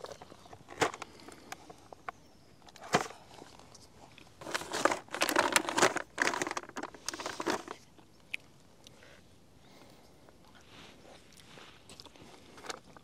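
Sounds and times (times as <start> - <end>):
plastic packaging crinkling: 4.4 - 7.8.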